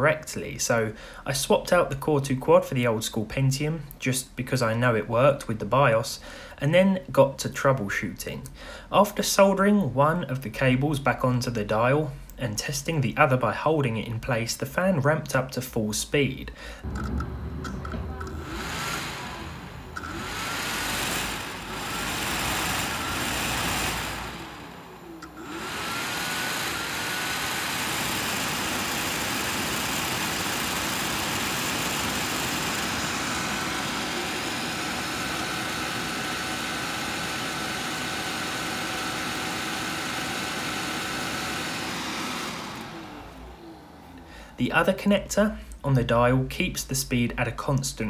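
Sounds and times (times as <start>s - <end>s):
cooler fan air rush: 16.6s - 45.7s
high steady fan whine: 16.8s - 45.7s.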